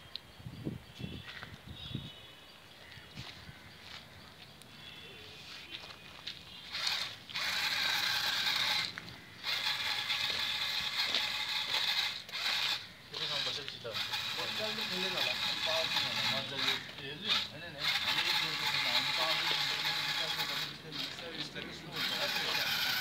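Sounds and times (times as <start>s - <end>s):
wheels over gravel: 5.6s - 23.0s
robot motors whining: 6.7s - 23.0s.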